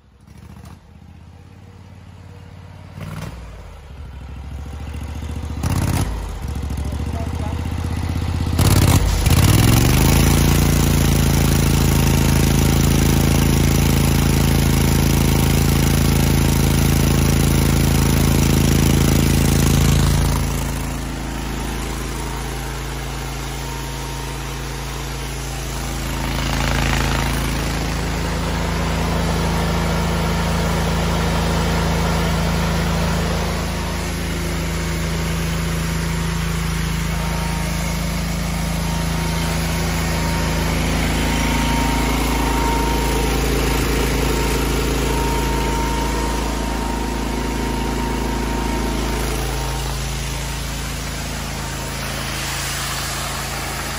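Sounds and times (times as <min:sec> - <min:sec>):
pressure washer engine running: 0:00.0 - 0:53.9.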